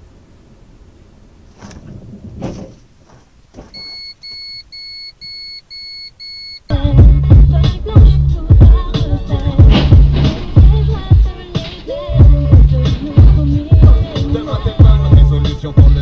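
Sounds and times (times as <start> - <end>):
electronic beeps: 3.7 - 6.7
in-car rumble: 6.7 - 16.0
loud hip hop music: 6.7 - 16.0
dull knocks: 9.4 - 11.7.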